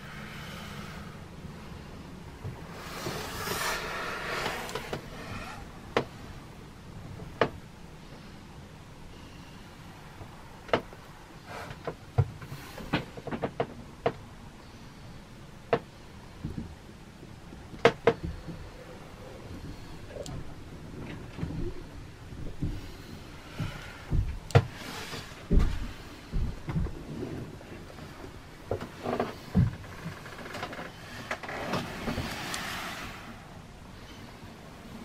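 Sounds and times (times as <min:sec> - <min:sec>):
low steady background noise: 0:00.0 - 0:35.0
rustle: 0:18.2 - 0:35.0.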